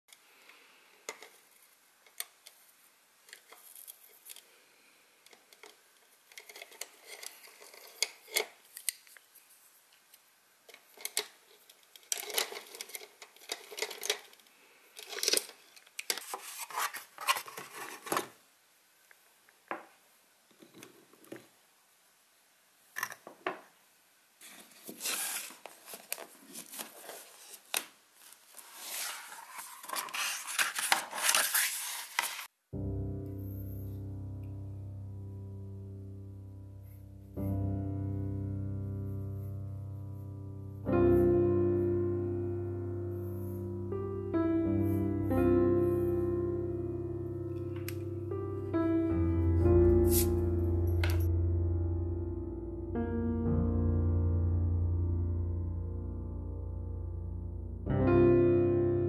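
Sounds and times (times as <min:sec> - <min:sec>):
paintbrushes rattling in plastic cup: 0:28.6 - 0:32.4.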